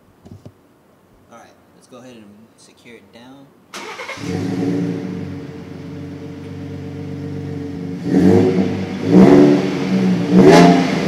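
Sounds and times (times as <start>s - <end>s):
truck engine idling and revving: 3.9s - 11.0s.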